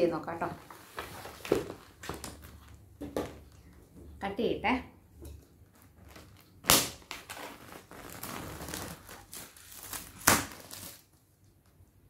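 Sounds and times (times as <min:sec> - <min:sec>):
packaging rustling and crinkling: 0:00.6 - 0:03.7, 0:05.6 - 0:11.5
packaging ripping: 0:05.8 - 0:11.2.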